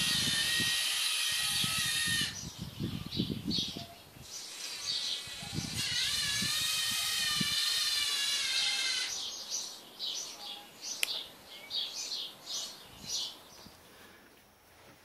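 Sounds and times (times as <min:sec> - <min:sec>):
servo motors whining: 0:00.0 - 0:02.5, 0:04.3 - 0:09.2
birds chirping: 0:00.0 - 0:14.5.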